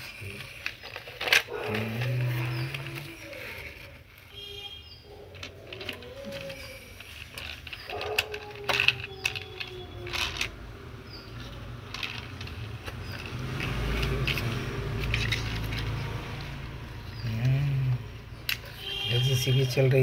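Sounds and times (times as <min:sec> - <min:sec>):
plastic toys clicking on concrete: 0:00.0 - 0:20.0.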